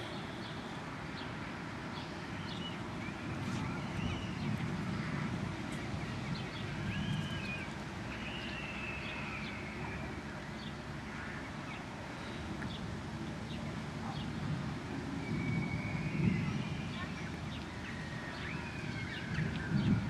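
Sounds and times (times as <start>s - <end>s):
birds chirping: 0.0s - 20.0s
birds whistled calls: 2.0s - 12.8s, 15.1s - 20.0s
steady low rumble: 2.8s - 20.0s.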